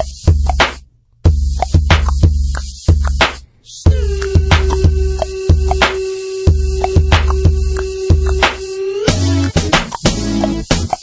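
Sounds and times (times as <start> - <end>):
hip hop beat: 0.0 - 11.0.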